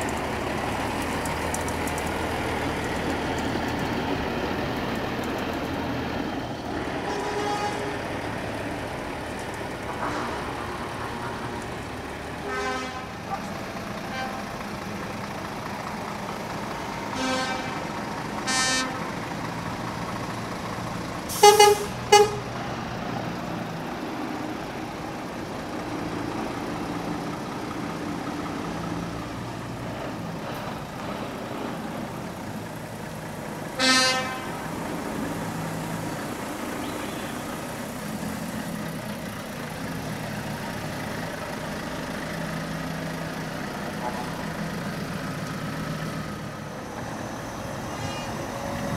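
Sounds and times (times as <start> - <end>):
truck engines running: 0.0 - 48.9
truck horns tooting: 7.0 - 8.3, 10.0 - 10.6, 12.4 - 14.6, 17.1 - 19.2, 21.3 - 22.6, 33.8 - 34.8, 47.8 - 48.9.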